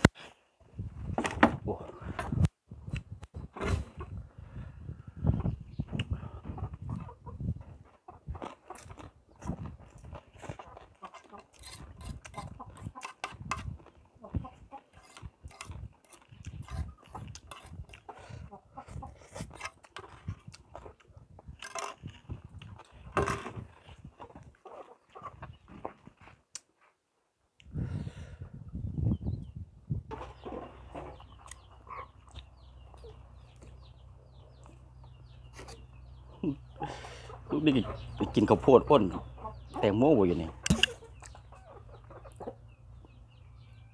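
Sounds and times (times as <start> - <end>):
chicks peeping: 2.9 - 21.4, 22.2 - 26.1, 28.0 - 43.9
wet chewing with crunchy bites: 8.3 - 14.1, 14.8 - 25.4, 31.3 - 33.8.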